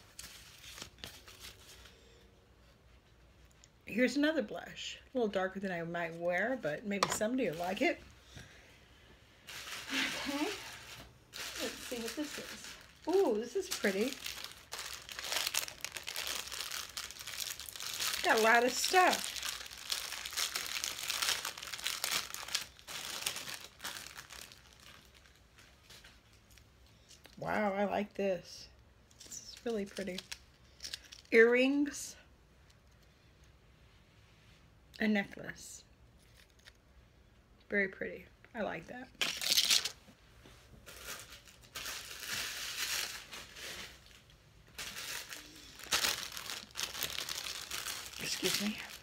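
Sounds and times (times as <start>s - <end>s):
plastic packaging crinkling: 9.4s - 27.4s, 29.2s - 31.4s, 39.2s - 40.0s, 40.8s - 49.0s.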